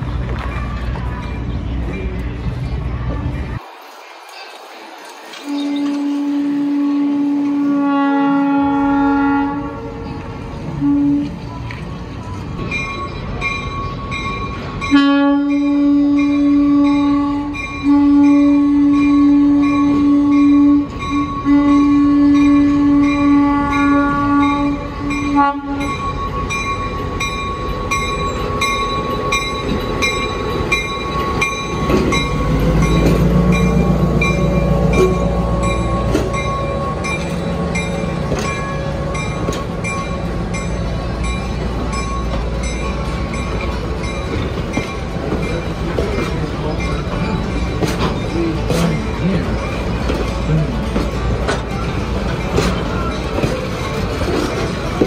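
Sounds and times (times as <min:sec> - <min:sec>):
locomotive engine rumble: 0:00.0 - 0:55.0
locomotive air horn blast: 0:05.5 - 0:10.0, 0:14.9 - 0:25.9.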